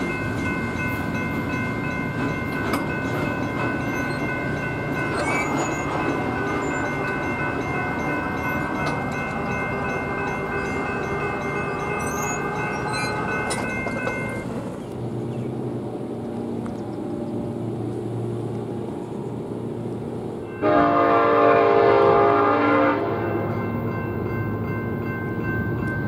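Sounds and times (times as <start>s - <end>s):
train rumbling: 0.0s - 26.0s
locomotive horn blast: 12.1s - 13.6s, 20.5s - 23.6s.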